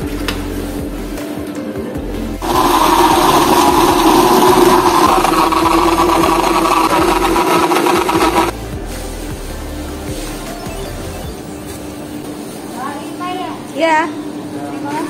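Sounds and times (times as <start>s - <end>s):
electric motor whirring: 2.4s - 8.5s.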